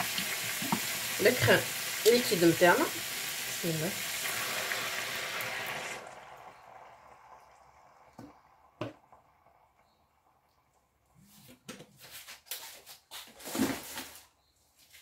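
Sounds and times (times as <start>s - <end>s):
sauce sizzling in a pan: 0.0s - 10.0s
cream pouring: 2.9s - 11.4s.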